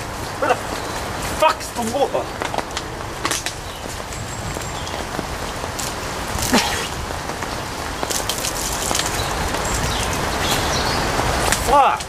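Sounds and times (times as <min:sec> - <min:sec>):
rain falling on leaves: 0:00.0 - 0:12.0
water dripping: 0:00.3 - 0:12.0
water pouring from plastic bottle: 0:08.0 - 0:10.3.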